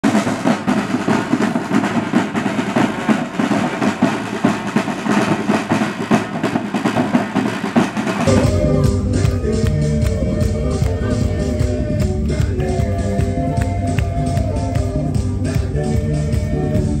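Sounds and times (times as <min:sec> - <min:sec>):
marching snare drums: 0:00.0 - 0:17.0
bass drum beats: 0:06.2 - 0:17.0.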